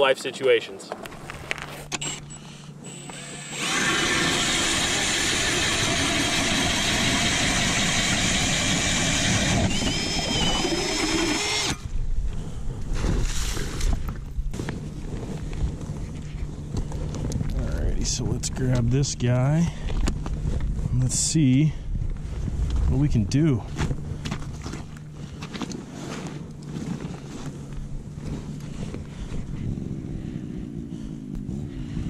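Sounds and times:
ice auger drilling into ice: 2.9 - 11.9.

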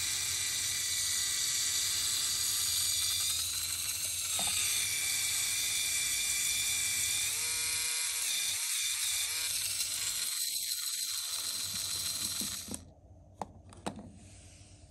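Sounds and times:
electric motor whining: 2.1 - 6.0.

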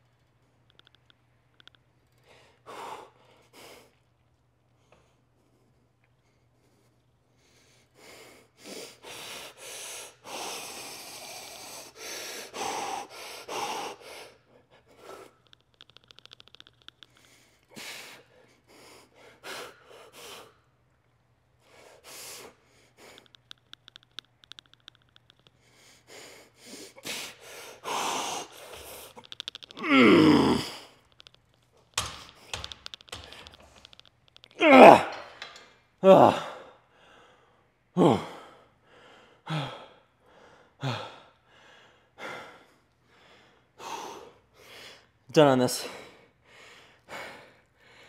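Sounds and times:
man breathing hard: 7.5 - 15.4, 25.6 - 29.2, 36.3 - 45.2, 45.8 - 48.0
man groaning: 29.8 - 30.7, 34.6 - 35.3, 38.0 - 38.4.

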